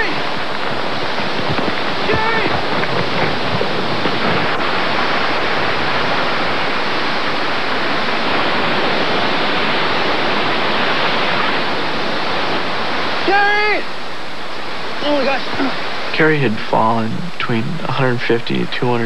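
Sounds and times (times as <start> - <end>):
waterfall rushing over rock: 0.0 - 17.0
person shouting: 2.1 - 2.6, 13.3 - 13.8.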